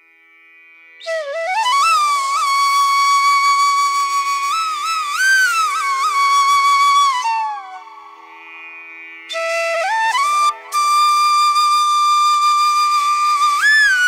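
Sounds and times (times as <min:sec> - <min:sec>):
flute-like melody: 0:01.0 - 0:08.3, 0:09.3 - 0:14.0.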